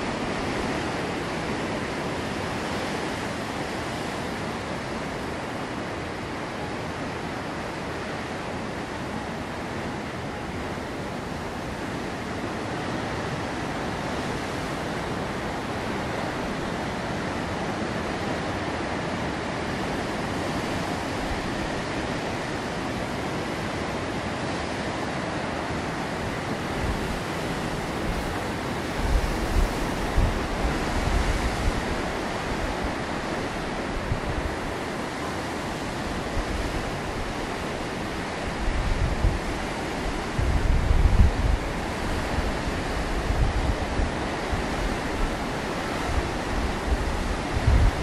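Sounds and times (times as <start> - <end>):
sea surf breaking over rocks: 0.0 - 48.0
wind buffeting microphone: 25.5 - 48.0.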